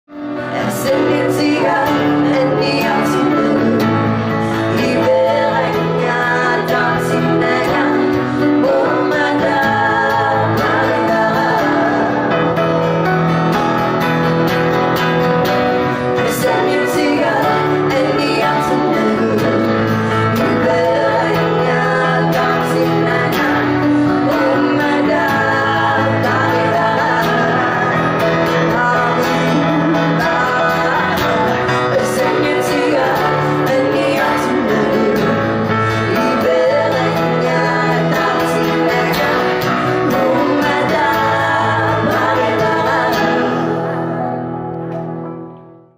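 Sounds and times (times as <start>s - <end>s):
piano: 0.0s - 45.9s
strummed acoustic guitar: 0.2s - 45.8s
voices singing together: 0.4s - 13.1s, 15.7s - 44.7s.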